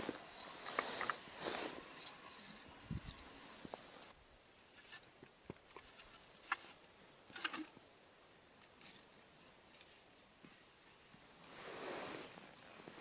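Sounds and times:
light crackly rustles: 0.0 - 4.1.

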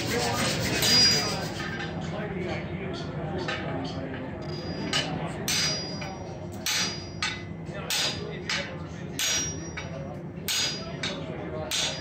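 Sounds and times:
hammers striking steel on anvil: 4.5 - 12.0.

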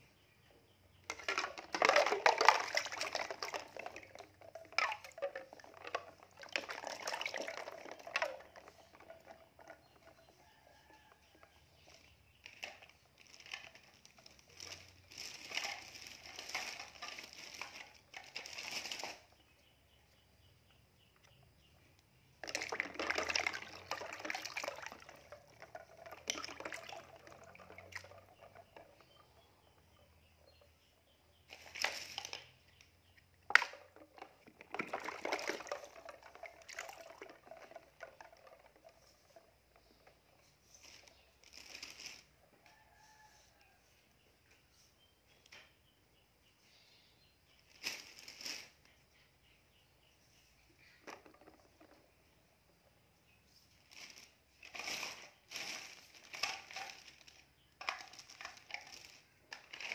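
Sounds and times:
toy knocking tub: 1.0 - 15.0, 22.4 - 32.6, 33.3 - 40.6, 50.8 - 52.5
water sloshing in plastic basin: 1.1 - 19.5, 22.4 - 42.9.

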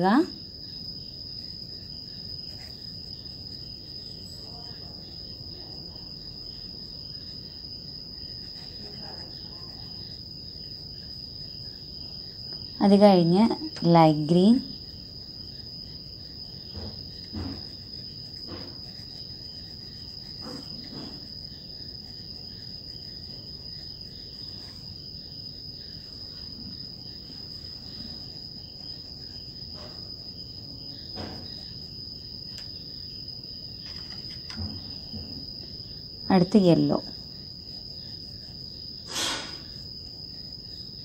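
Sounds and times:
high-pitched insect trill: 0.0 - 41.0
oil pastel scraping on paper: 16.7 - 24.9.

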